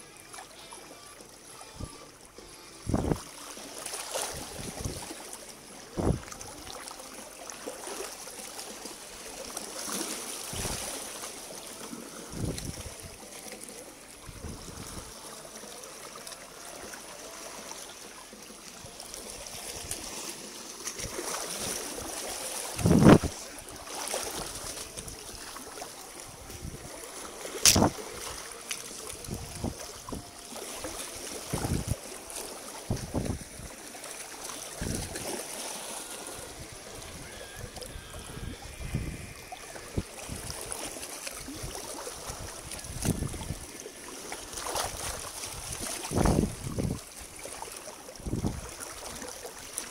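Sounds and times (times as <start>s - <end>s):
splashes of wading: 0.0s - 49.9s
stream water running: 0.0s - 49.9s
sharp click: 27.6s - 27.9s.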